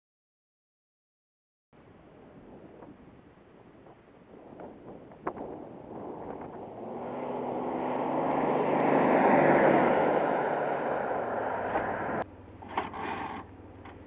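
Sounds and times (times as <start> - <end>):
pickup truck driving past: 5.8 - 12.2.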